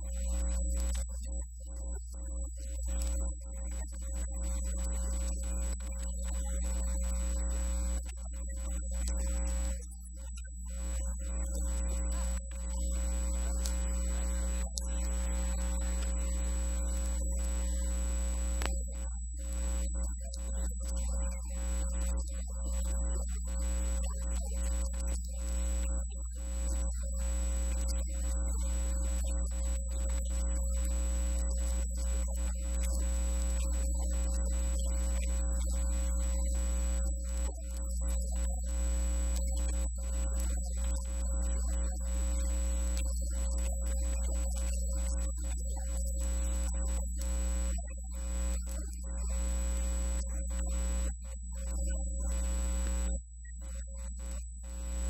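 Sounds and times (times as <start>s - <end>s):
mains hum: 0.0s - 55.0s
faint high whine: 2.8s - 55.0s
high whine: 10.8s - 20.1s, 46.2s - 55.0s
low hum: 51.7s - 53.8s.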